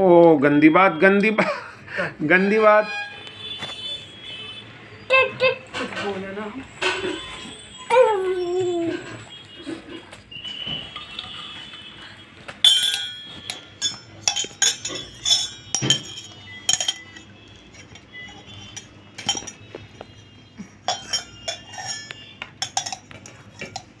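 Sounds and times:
metal dishes clinking: 12.6s - 24.0s.

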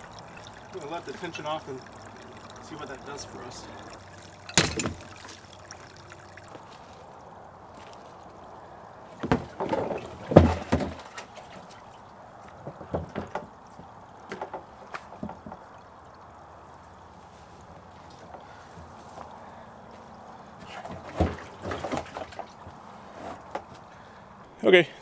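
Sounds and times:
rustling of dry leaves: 4.1s - 10.4s, 16.5s - 20.7s.

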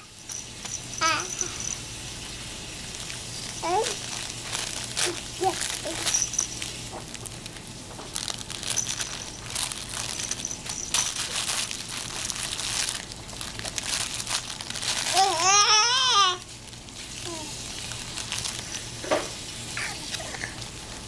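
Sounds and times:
baby squealing: 1.0s - 1.6s, 3.6s - 4.0s, 15.1s - 16.4s
fabric blocks rustling and crinkling: 2.9s - 19.0s.

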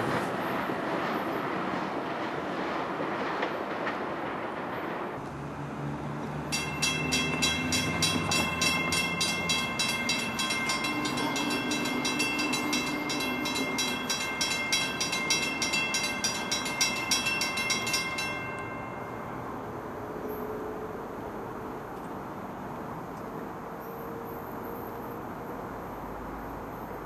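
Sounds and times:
crossing bell ringing: 6.4s - 19.9s.

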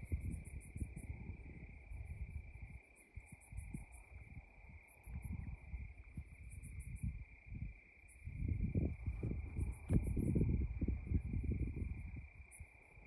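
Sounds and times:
night insects chirping: 0.0s - 13.0s.

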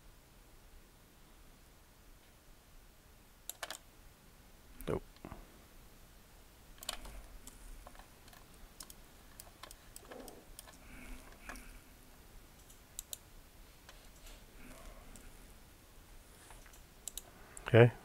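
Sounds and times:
keyboard and mouse clicking: 3.5s - 3.8s, 6.8s - 11.7s, 12.6s - 15.3s, 16.5s - 17.7s.

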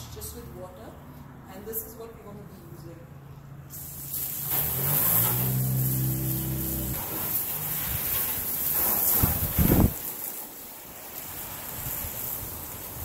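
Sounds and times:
vehicle engine hum: 2.6s - 9.9s
hose nozzle spraying water: 3.7s - 13.0s.

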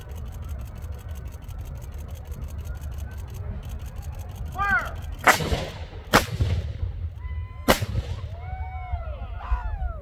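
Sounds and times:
people yelling: 4.4s - 5.1s, 7.2s - 10.0s
gunshots with echo: 5.2s - 6.9s.

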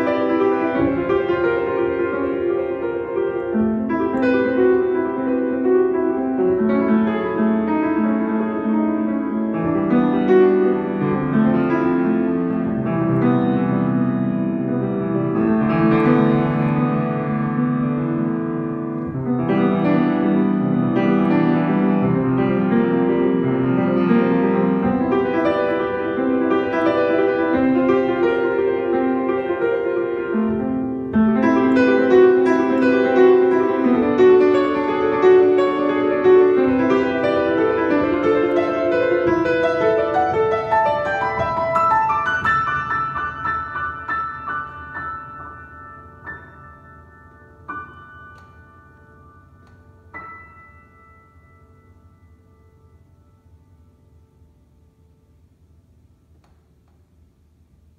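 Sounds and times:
solo grand piano: 0.0s - 57.9s.

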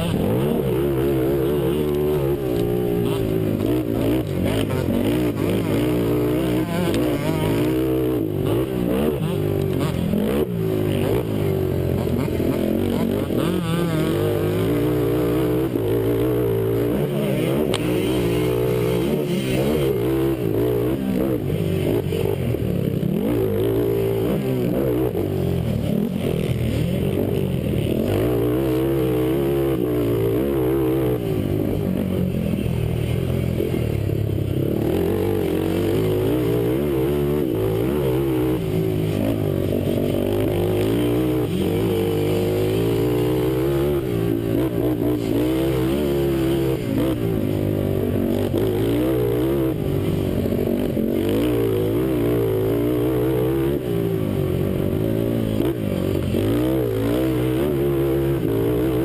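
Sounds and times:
quad engine revving: 0.0s - 59.0s.

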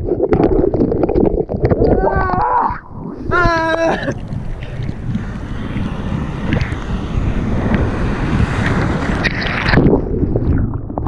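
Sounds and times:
wind noise on microphone: 0.0s - 11.0s
ocean surf breaking: 2.9s - 10.9s
rush of whitewater: 3.1s - 10.0s.

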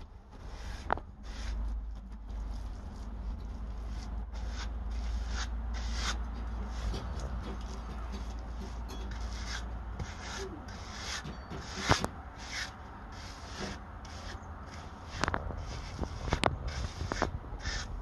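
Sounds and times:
float scraping mud plaster: 0.4s - 17.9s.

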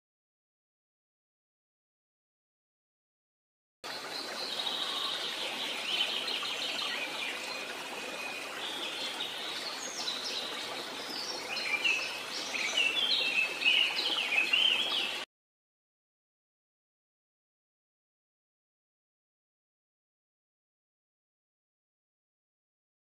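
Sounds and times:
flowing water rushing: 3.8s - 15.3s
birds chirping and trilling: 3.9s - 15.3s.

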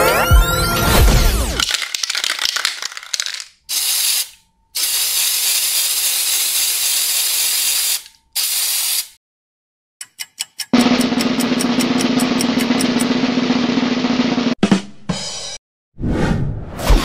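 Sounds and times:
spray paint can hissing: 1.6s - 9.2s.

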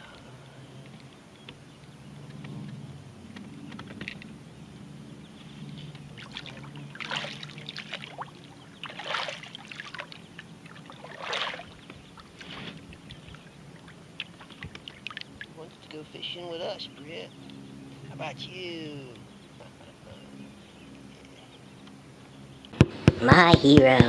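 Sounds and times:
water splashing beside canoe: 5.9s - 16.0s.

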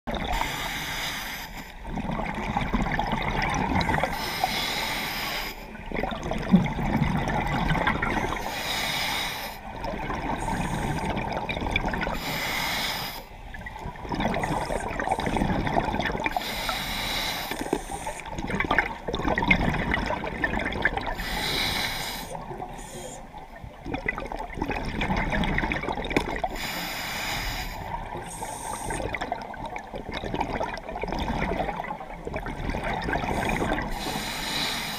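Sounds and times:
exhaled bubbles gurgling: 0.1s - 34.9s
regulator inhalation hiss: 0.4s - 1.7s, 4.1s - 5.7s, 8.4s - 9.7s, 12.2s - 13.4s, 16.3s - 18.3s, 21.2s - 23.2s, 26.6s - 29.0s, 33.4s - 34.9s.

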